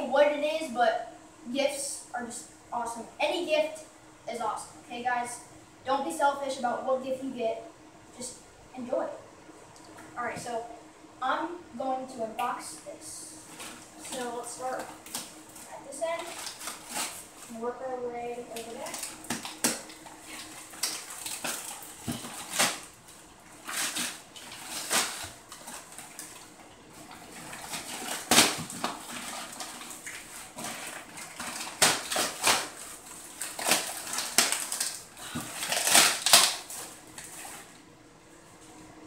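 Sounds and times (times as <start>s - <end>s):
wrapping paper tearing and crumpling: 13.4s - 17.6s, 18.5s - 37.8s.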